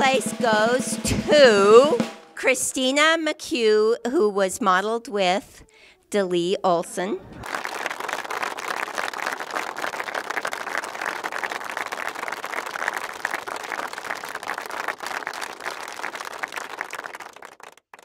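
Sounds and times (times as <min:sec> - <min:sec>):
audience applauding: 0:07.4 - 0:18.0.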